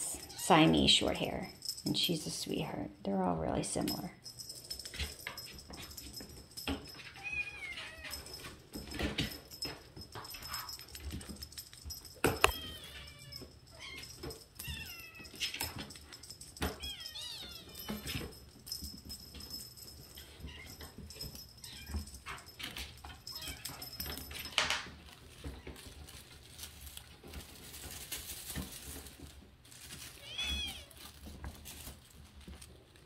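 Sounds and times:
kitten meowing: 30.2s - 31.0s.

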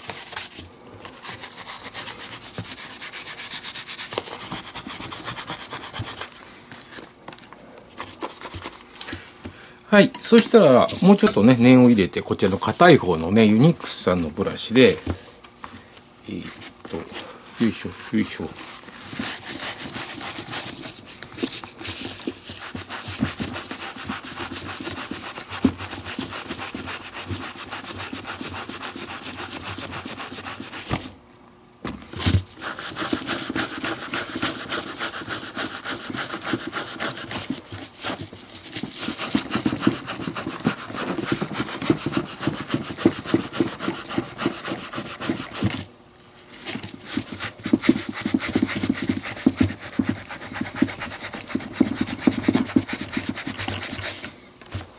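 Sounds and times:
brushes scrubbing leather: 1.2s - 6.3s, 17.6s - 30.9s, 32.6s - 45.8s, 46.9s - 54.3s.

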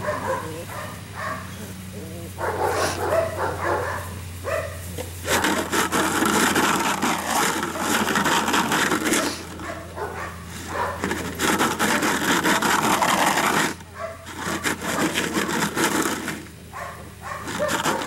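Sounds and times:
plastic jug rattling: 5.0s - 16.6s, 17.4s - 18.0s.

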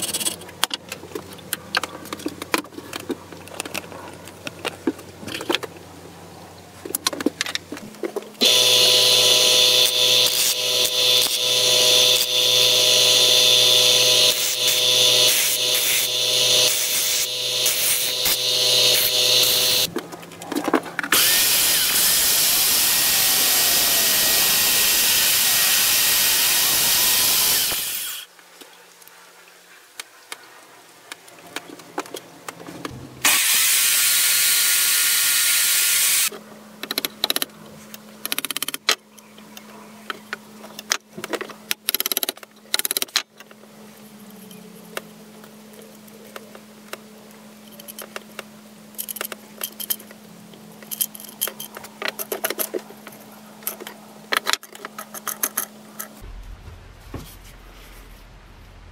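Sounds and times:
electric drill running: 8.4s - 19.9s, 21.1s - 28.3s, 33.2s - 36.3s
wooden pieces clicking and knocking: 38.2s - 39.0s
low steady hum: 56.0s - 58.9s.

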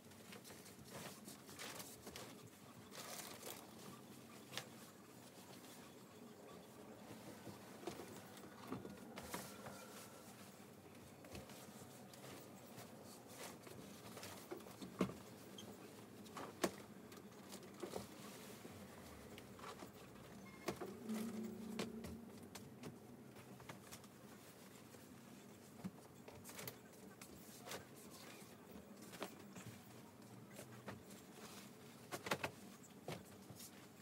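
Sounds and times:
bedding rustling: 0.0s - 6.0s, 6.6s - 21.7s.

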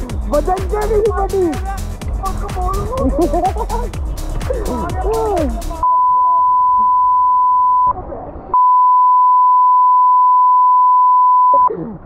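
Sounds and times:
censor bleep tone: 5.8s - 7.9s, 8.6s - 11.7s.

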